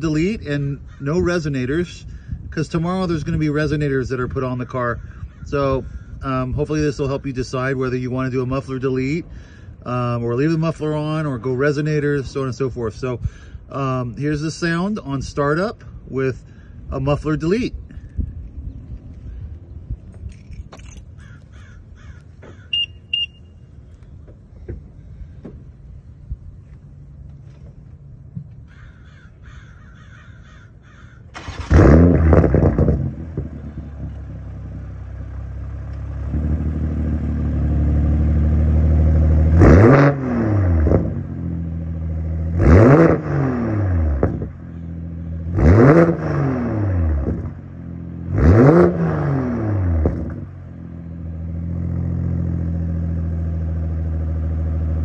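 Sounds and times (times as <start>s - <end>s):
car engine idling: 17.9s - 39.6s, 44.2s - 45.9s, 47.0s - 48.7s, 50.0s - 55.0s
car engine starting: 31.2s - 55.0s
car engine revving: 31.4s - 55.0s.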